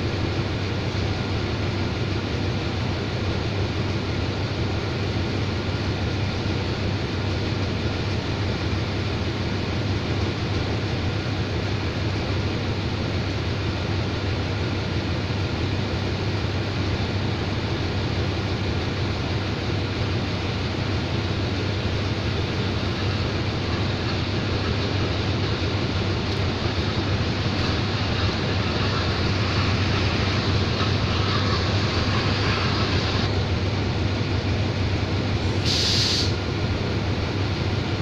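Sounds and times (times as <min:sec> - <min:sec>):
diesel locomotive idling: 0:00.0 - 0:38.0.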